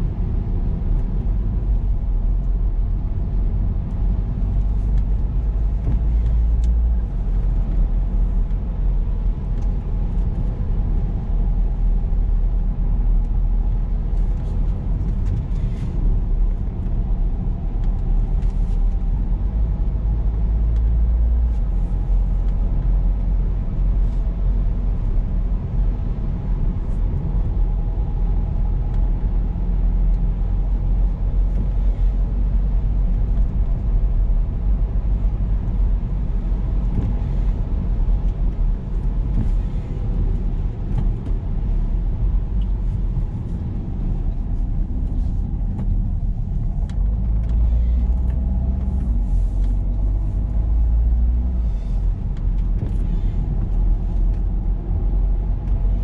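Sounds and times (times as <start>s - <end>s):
car engine and tyre rumble: 0.0s - 56.0s
faint engine hum: 0.0s - 56.0s.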